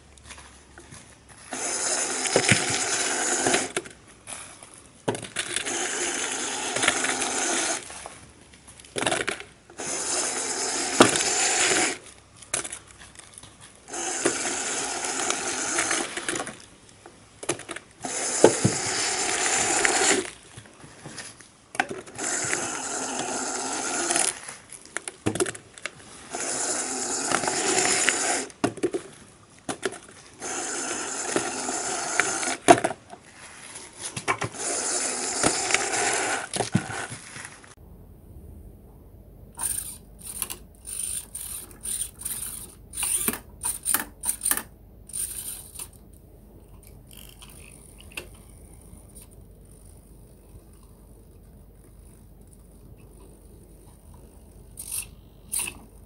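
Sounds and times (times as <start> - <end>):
rubbish compactor motor: 1.4 - 3.9, 5.3 - 8.2, 9.0 - 12.1, 13.8 - 16.6, 18.0 - 20.4, 21.9 - 24.5, 26.1 - 28.6, 30.4 - 33.0, 34.4 - 37.2, 39.5 - 51.2.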